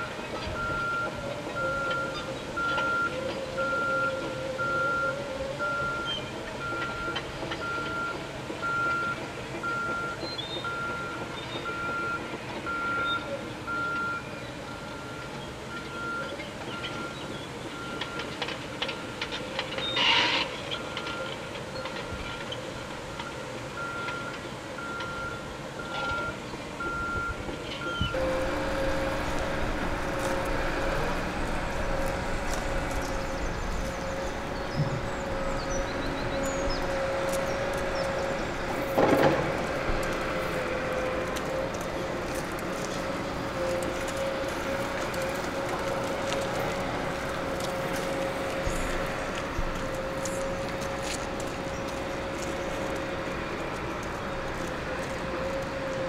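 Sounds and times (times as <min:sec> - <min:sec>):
diesel machinery engine drone: 0:00.0 - 0:56.0
reversing alarm beeps: 0:00.5 - 0:19.2, 0:19.8 - 0:22.4, 0:23.1 - 0:31.1
loud clatter: 0:38.6 - 0:40.4.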